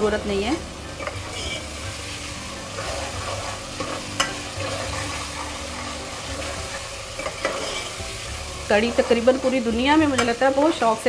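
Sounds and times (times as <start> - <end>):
masala sizzling in oil: 0.0 - 11.0
steel ladle scraping pot: 0.9 - 10.5
ladle clinking on pot: 1.0 - 1.6, 3.8 - 4.7, 7.2 - 8.0.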